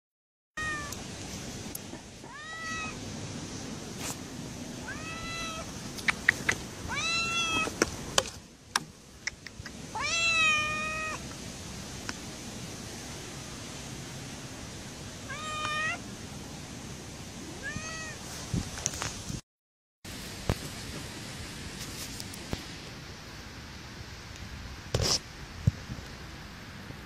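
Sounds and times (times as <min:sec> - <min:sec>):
kitten meowing: 0:00.6 - 0:01.0, 0:02.2 - 0:03.0, 0:04.8 - 0:05.7, 0:06.9 - 0:07.7, 0:09.9 - 0:11.2, 0:15.3 - 0:16.0, 0:17.6 - 0:18.2.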